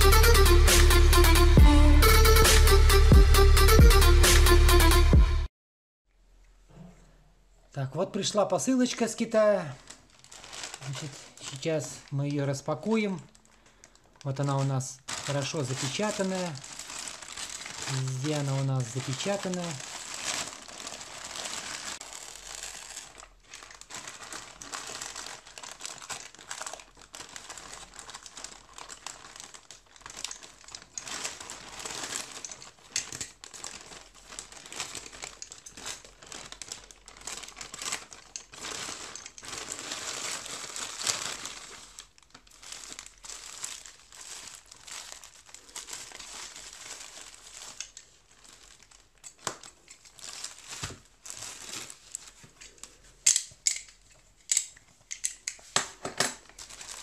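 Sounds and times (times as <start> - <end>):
plastic mailer bag crinkling: 8.8 - 53.2, 56.4 - 57.0
paper wrapping rustling: 8.8 - 55.8, 56.4 - 57.0.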